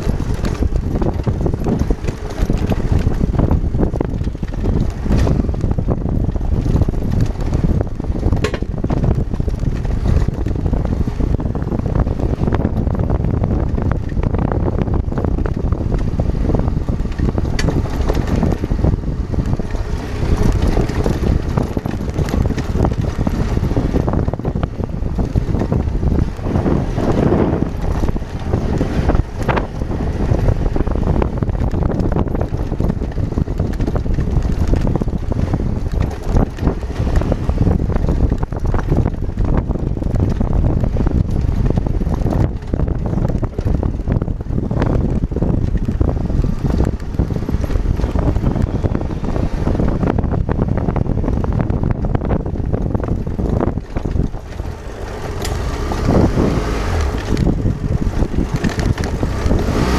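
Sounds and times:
knocks and rattles from bumps: 0:00.0 - 0:11.0
motorcycle engine and tyres: 0:00.0 - 0:59.9
wind buffeting microphone: 0:00.0 - 0:59.9.

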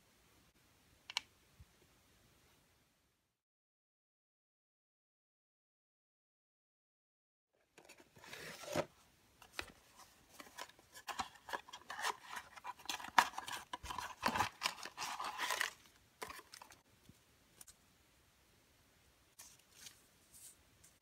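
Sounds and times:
plastic wrapping crinkling: 0:10.5 - 0:16.8.

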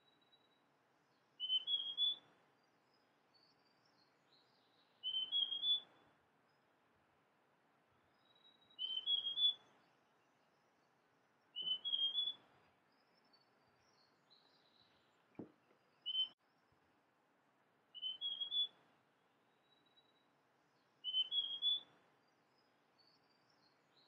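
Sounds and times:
bird whistling song: 0:01.4 - 0:02.3, 0:03.3 - 0:06.0, 0:08.2 - 0:09.8, 0:11.5 - 0:15.1, 0:16.0 - 0:16.4, 0:17.9 - 0:18.8, 0:21.0 - 0:22.0.

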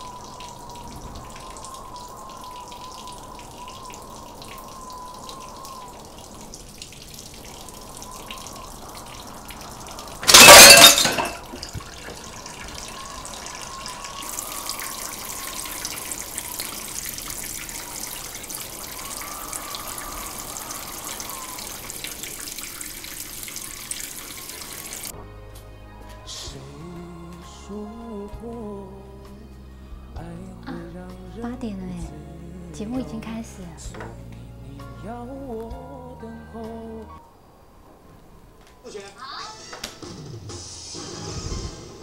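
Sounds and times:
soft background music: 0:24.4 - 0:39.0.

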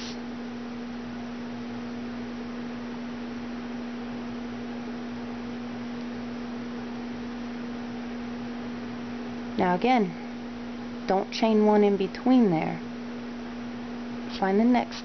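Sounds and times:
faint hiss: 0:00.0 - 0:00.2
steady electrical hum: 0:00.0 - 0:15.0.

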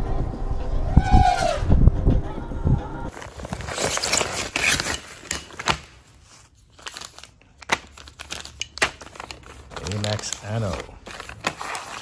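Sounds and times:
plastic bags crinkling: 0:03.1 - 0:12.0.

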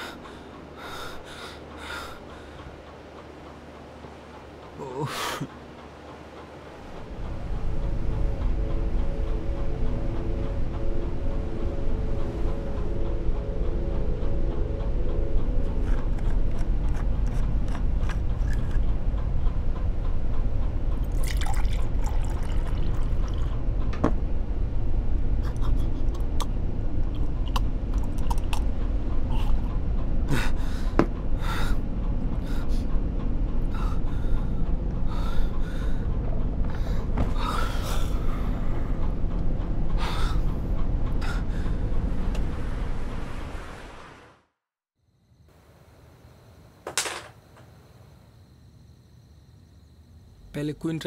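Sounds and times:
steady low rumble: 0:00.0 - 0:44.2
liquid pouring and dripping: 0:21.0 - 0:23.6.

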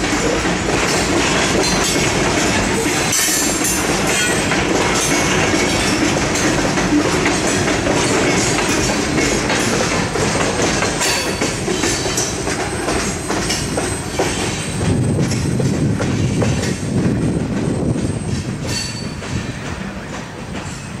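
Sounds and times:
train wheels clacking on rails: 0:00.0 - 0:21.0.

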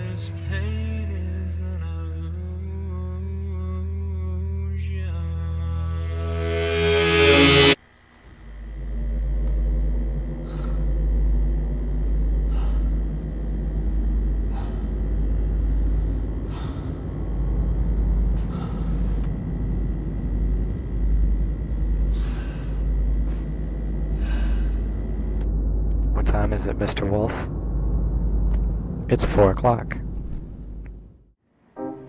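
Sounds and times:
low rumble: 0:05.0 - 0:07.8, 0:08.6 - 0:31.4
person breathing heavily: 0:10.3 - 0:11.2, 0:12.4 - 0:13.7, 0:14.3 - 0:17.6, 0:18.3 - 0:19.6, 0:22.0 - 0:25.4.

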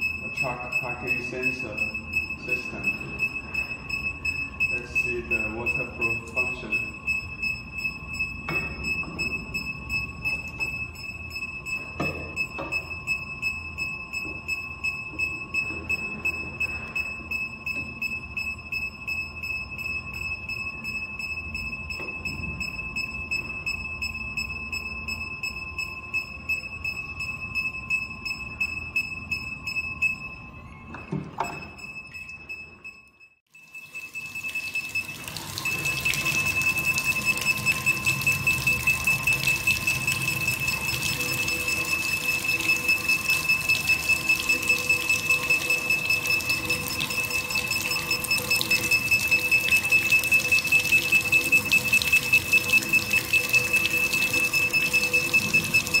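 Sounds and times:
high-pitched warning beeps: 0:00.0 - 0:56.0
water spraying and splashing: 0:34.2 - 0:56.0.

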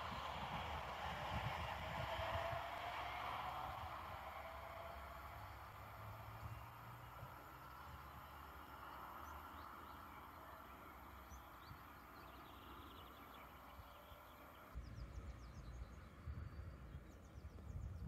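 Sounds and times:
wind buffeting microphone: 0:00.0 - 0:09.6, 0:14.8 - 0:18.0
birds chirping: 0:04.3 - 0:18.0.

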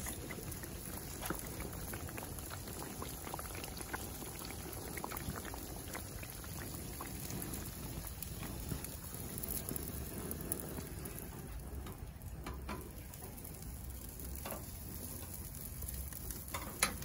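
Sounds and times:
food deep-frying in hot oil: 0:00.0 - 0:17.0.

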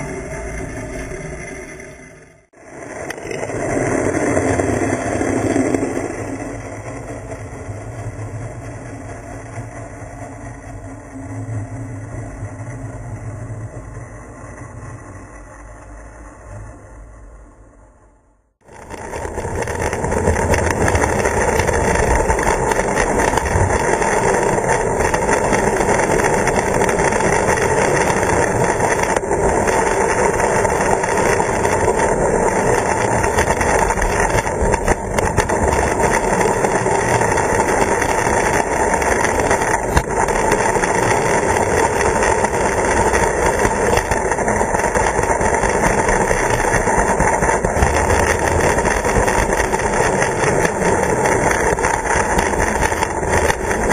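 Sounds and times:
model train wheels rumbling: 0:02.6 - 0:16.8, 0:18.6 - 0:53.9.

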